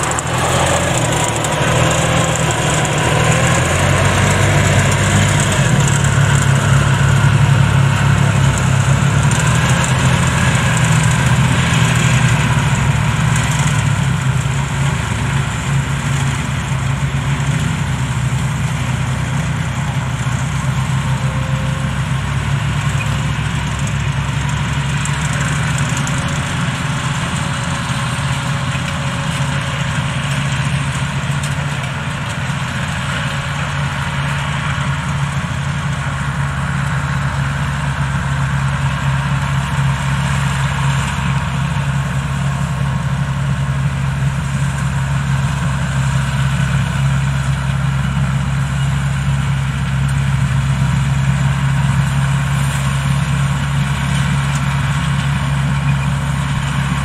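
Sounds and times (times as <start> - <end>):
harvester engine drone: 0.0 - 57.0.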